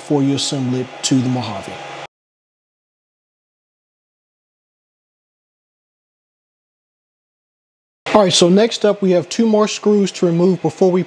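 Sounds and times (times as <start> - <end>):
man's voice: 8.1 - 11.0.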